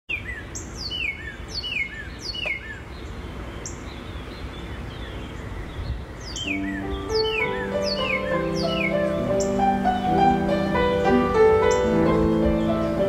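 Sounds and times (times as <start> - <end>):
birds chirping: 0.1 - 13.0
low outdoor background noise: 0.1 - 13.0
bird call of falling notes: 6.4 - 13.0.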